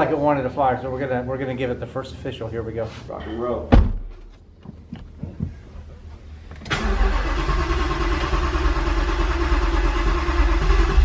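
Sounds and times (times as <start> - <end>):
car engine starting and running: 6.4 - 11.0.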